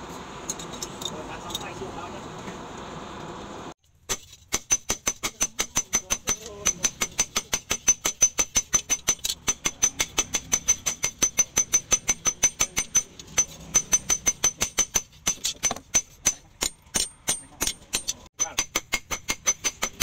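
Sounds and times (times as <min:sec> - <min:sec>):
hammer ringing on anvil: 0:05.2 - 0:15.0.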